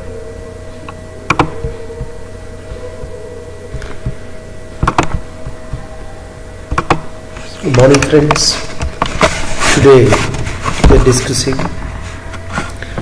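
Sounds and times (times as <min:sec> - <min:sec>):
steady electrical hum: 0:00.0 - 0:13.0
sharp clicks: 0:01.3 - 0:01.6, 0:04.8 - 0:05.2, 0:06.7 - 0:07.1.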